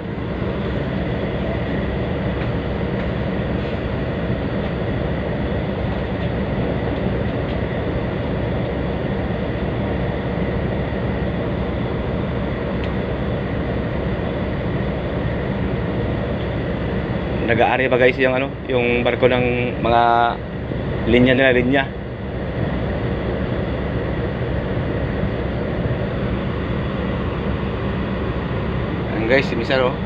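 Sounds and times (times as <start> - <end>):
diesel engine drone: 0.0 - 30.0
faint steady whine: 0.0 - 30.0.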